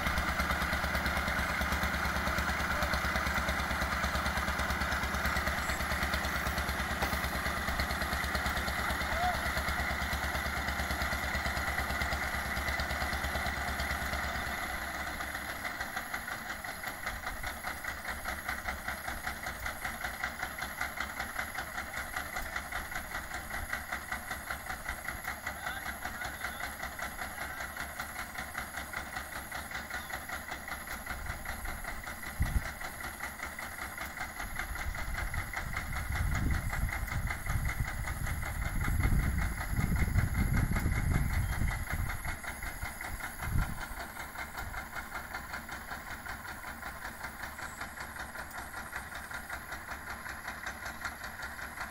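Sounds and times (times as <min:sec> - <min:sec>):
boat engine chugging: 0:00.0 - 0:51.9.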